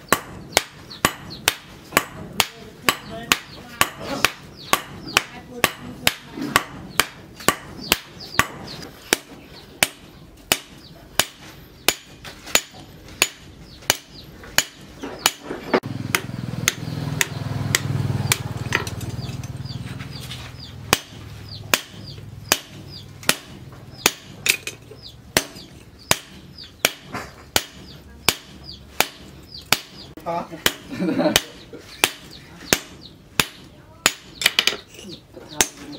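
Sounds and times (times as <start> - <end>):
hammer striking hot steel: 0.1 - 19.0, 20.9 - 24.7.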